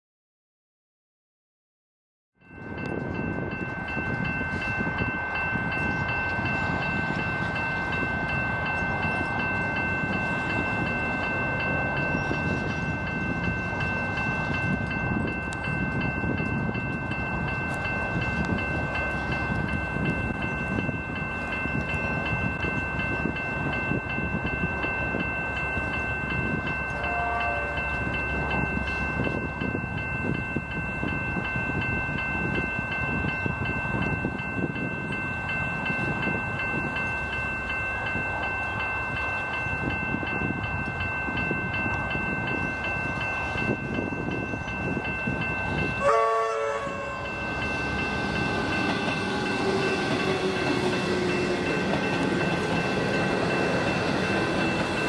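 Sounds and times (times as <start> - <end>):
level crossing bells ringing: 2.4 - 55.0
train rumble and whine: 2.4 - 55.0
loud train horn blast: 26.9 - 27.9, 46.0 - 47.2
distant train horn: 26.9 - 28.1, 46.0 - 47.4.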